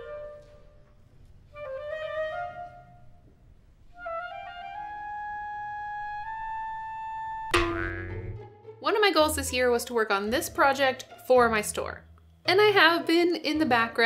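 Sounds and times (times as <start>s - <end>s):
wind instrument melody: 0.0s - 0.9s, 1.5s - 3.3s, 3.9s - 8.5s.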